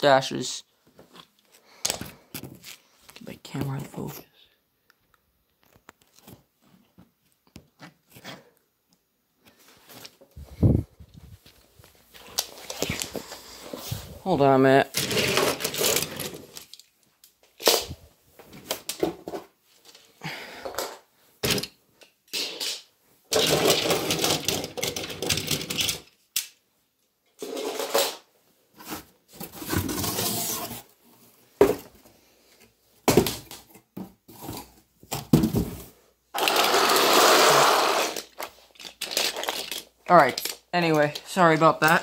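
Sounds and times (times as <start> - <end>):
scraping or rustling: 9.5 - 14.2, 27.4 - 31.0
handling and rummaging knocks: 31.5 - 32.0, 33.0 - 36.0.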